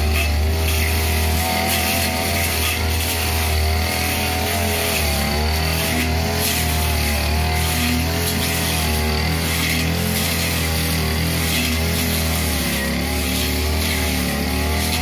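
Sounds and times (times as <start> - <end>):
blade cutting through grass: 0.0 - 15.0
brush cutter engine running: 0.0 - 15.0.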